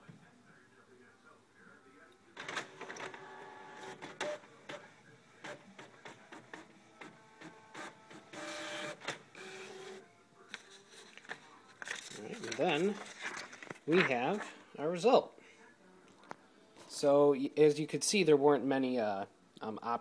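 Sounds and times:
printer motors whirring: 2.4 - 10.0.

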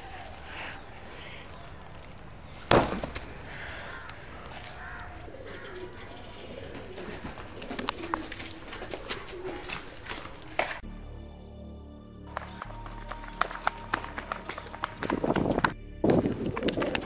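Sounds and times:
loud thump: 2.7 - 3.3
low wavering cooing calls: 3.4 - 10.8.

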